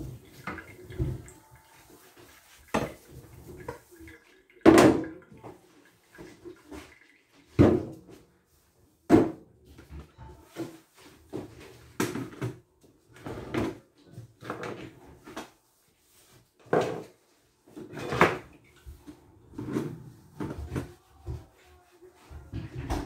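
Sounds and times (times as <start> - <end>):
items knocking and scraping on worktop: 16.6 - 21.0.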